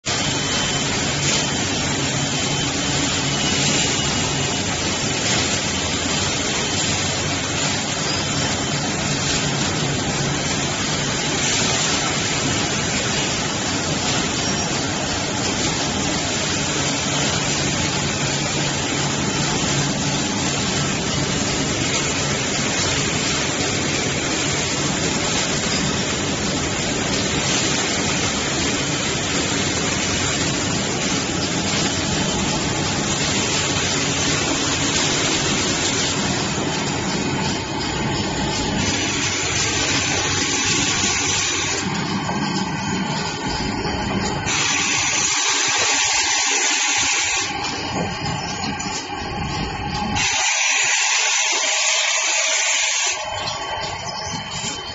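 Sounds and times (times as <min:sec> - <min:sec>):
packaging machinery running: 0:00.1 - 0:54.9.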